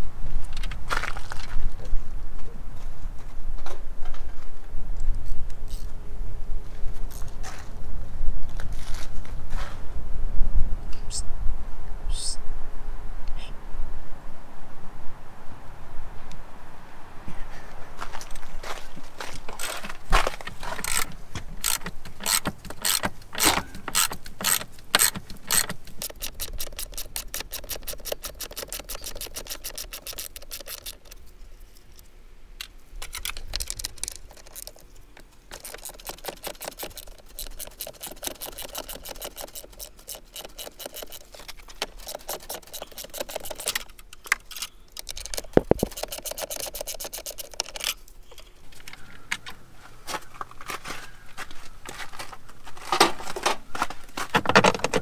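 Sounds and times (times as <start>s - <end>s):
socket ratchet clicking: 20.8s - 31.2s, 35.5s - 48.0s.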